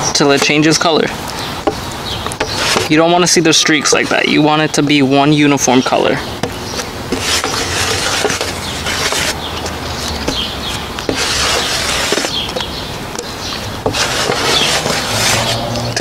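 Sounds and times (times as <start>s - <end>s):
plastic spreader scraping filler: 2.4s - 3.1s, 6.8s - 9.4s, 10.0s - 12.6s, 13.8s - 16.0s.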